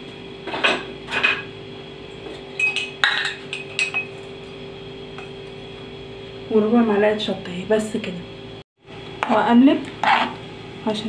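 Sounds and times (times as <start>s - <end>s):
metal spoon clinking on dishes: 2.6s - 4.1s.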